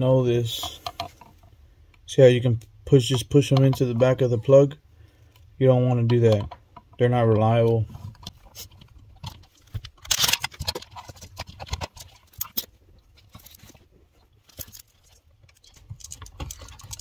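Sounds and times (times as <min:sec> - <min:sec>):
hands handling plastic box: 0:05.4 - 0:17.0.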